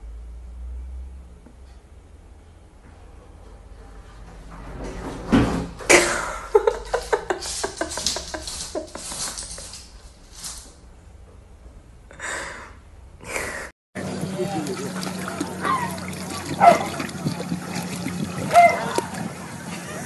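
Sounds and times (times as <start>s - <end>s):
cabinet drawer knocking and clattering: 4.2s - 6.2s.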